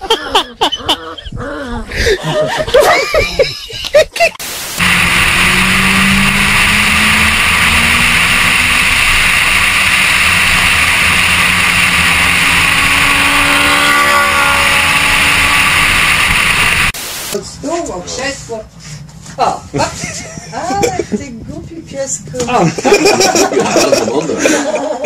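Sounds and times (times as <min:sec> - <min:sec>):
car engine humming: 0:04.4 - 0:17.4
wind and road noise: 0:04.4 - 0:18.7, 0:19.6 - 0:22.6
higher engine note: 0:04.5 - 0:17.4.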